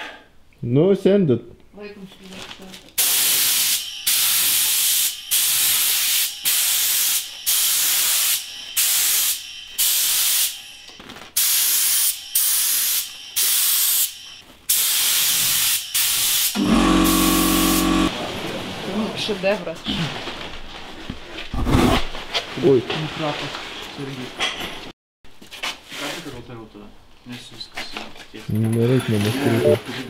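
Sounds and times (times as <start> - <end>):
spray gun hissing: 3.0 - 10.6, 11.4 - 18.1.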